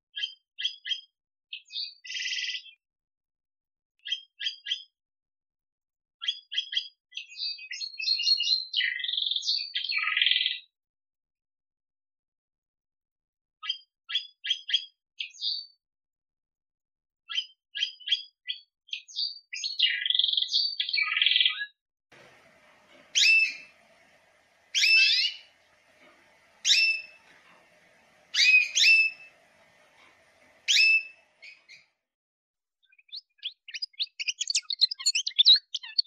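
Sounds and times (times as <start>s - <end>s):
canary singing chirps and trill: 4.0s - 4.9s, 6.2s - 10.7s, 17.3s - 31.9s, 32.8s - 36.0s
background noise: 22.1s - 31.9s
bird call with whistled note: 23.1s - 23.7s, 24.7s - 25.5s, 26.6s - 27.3s, 28.3s - 29.3s, 30.7s - 31.8s.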